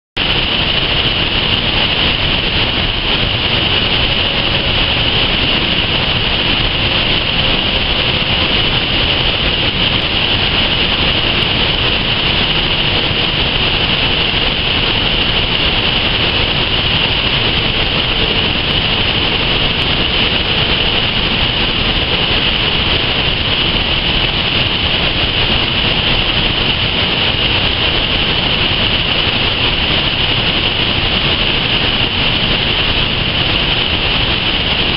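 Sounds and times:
river water rushing over rocks: 0.2 - 34.9.

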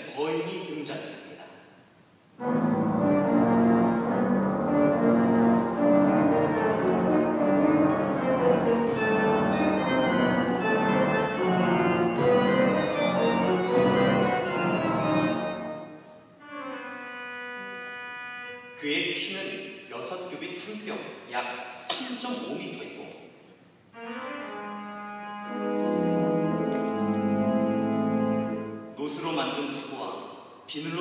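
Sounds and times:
pipe organ playing chords: 2.4 - 18.8, 23.9 - 29.0.

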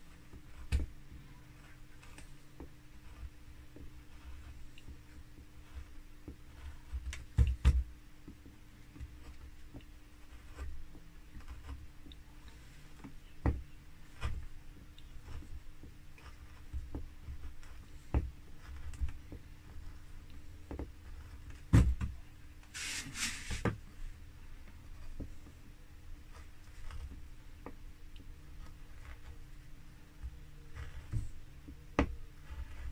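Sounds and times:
chisel scraping hiss: 22.7 - 23.7.

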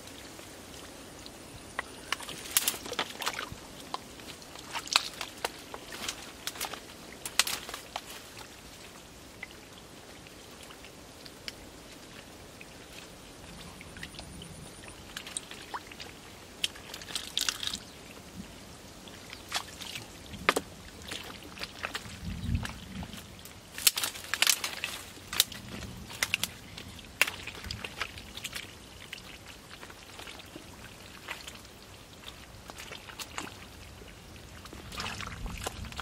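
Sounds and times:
hands splashing in muddy water: 19.3 - 36.0.

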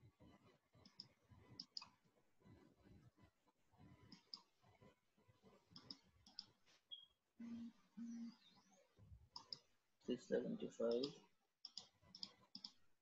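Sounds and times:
faint computer mouse clicks: 5.8 - 7.0, 9.3 - 9.7, 10.9 - 12.8.

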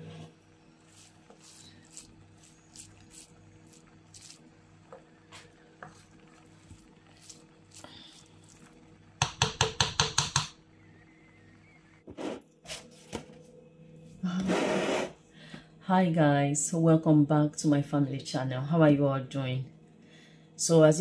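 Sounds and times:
wooden spoon scraping a pot: 0.8 - 8.7, 14.4 - 15.2.

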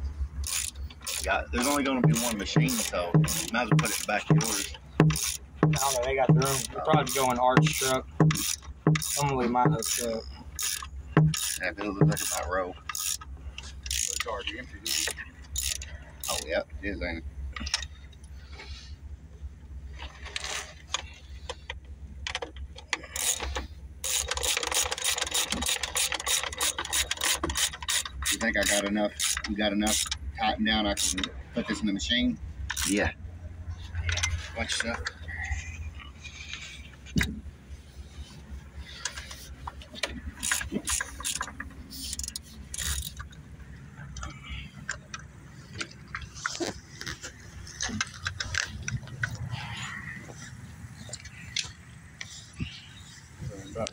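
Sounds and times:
ratchet wrench clicking: 0.4 - 14.3, 14.9 - 16.5, 23.0 - 30.3, 30.9 - 31.3, 32.7 - 33.0, 40.4 - 43.4.

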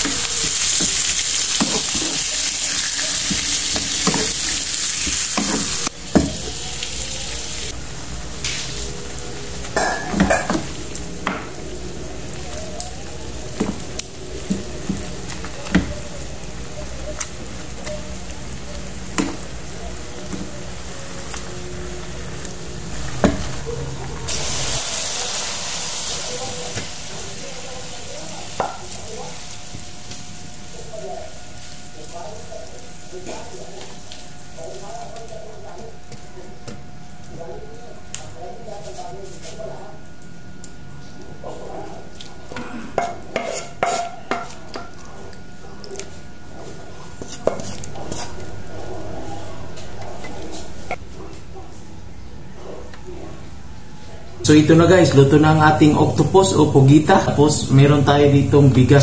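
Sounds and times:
utensils clinking against a dish: 0.0 - 6.5, 9.6 - 11.5, 42.1 - 46.2
food hissing and sizzling: 0.0 - 40.0.

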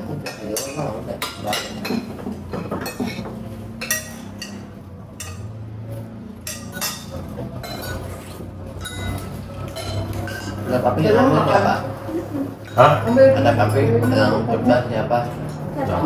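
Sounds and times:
cutlery clinking on plates: 0.1 - 10.7.

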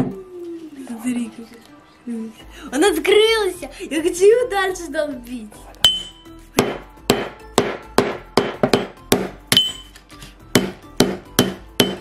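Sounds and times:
hammer striking phone on metal: 5.9 - 9.9, 10.5 - 12.0.

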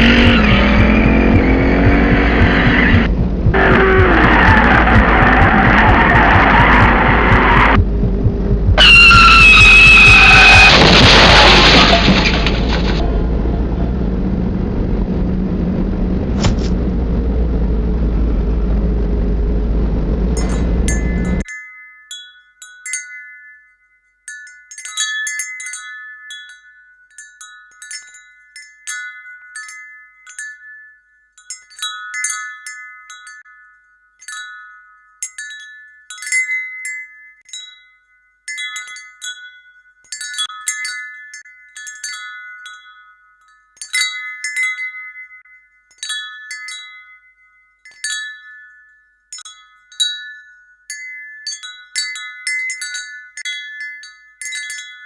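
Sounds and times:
wind chimes tinkling: 0.0 - 3.1, 20.4 - 55.0.

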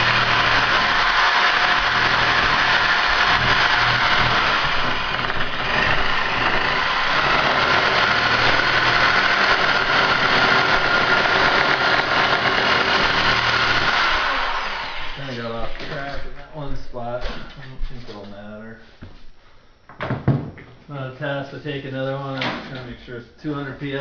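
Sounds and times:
power tool cutting plastic pipe: 0.0 - 15.4.

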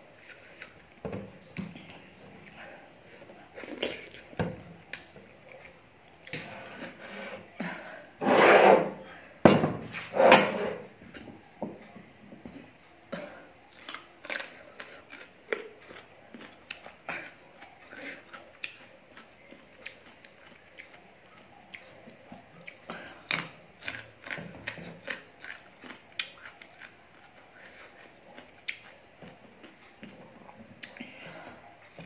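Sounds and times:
person chewing with mouth clicks: 13.4 - 32.0.

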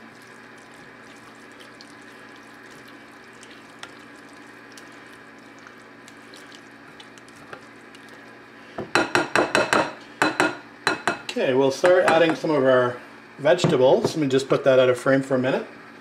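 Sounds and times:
spatula squelching and scraping: 0.0 - 8.8
low background hum: 0.0 - 16.0.

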